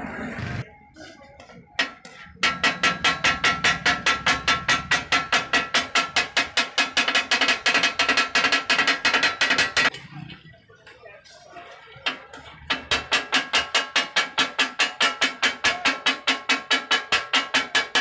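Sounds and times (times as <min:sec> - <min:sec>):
metal spatulas clanging on griddle: 0:01.0 - 0:09.9, 0:12.0 - 0:18.0.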